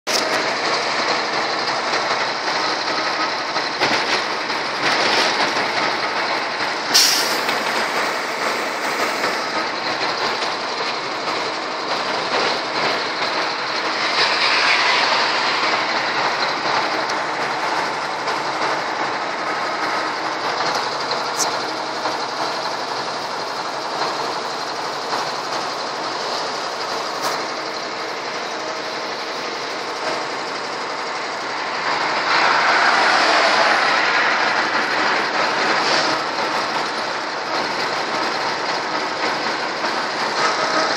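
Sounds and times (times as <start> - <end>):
vehicle driving from inside cab: 28.7 - 38.4.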